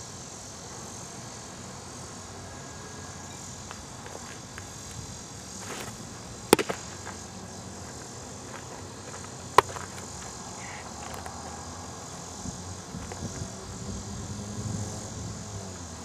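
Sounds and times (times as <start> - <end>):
outdoor hiss: 0.0 - 16.0
ball smacking into leather mitt: 5.6 - 7.2, 9.1 - 10.1.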